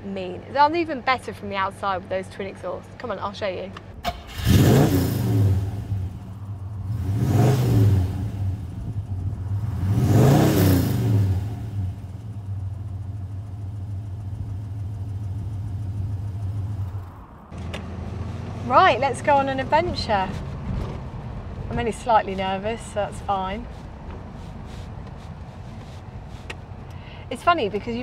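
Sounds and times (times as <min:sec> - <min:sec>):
car engine revving and idling: 0:04.0 - 0:28.0.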